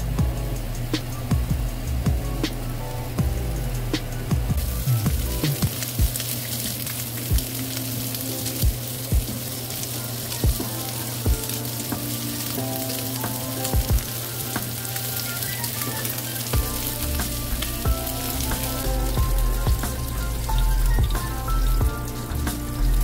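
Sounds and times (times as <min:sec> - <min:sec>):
meat sizzling in hot fat: 0:04.6 - 0:23.0.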